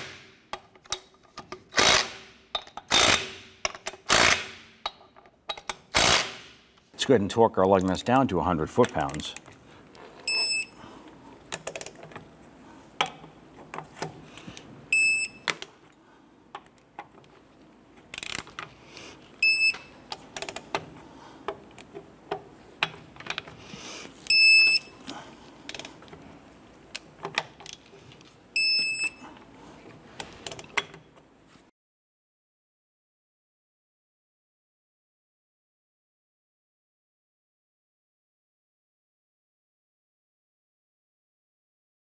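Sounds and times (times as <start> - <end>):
wrench ratchet clicking: 18.2 - 18.5
torque wrench beeping: 24.3 - 24.9.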